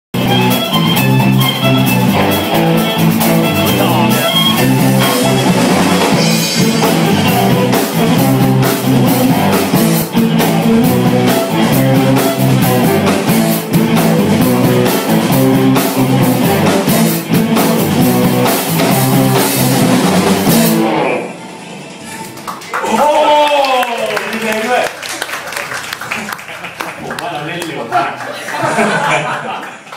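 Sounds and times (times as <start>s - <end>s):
bass guitar: 0.1s - 21.4s
drum kit steady beat: 0.2s - 21.0s
electric guitar: 0.2s - 22.8s.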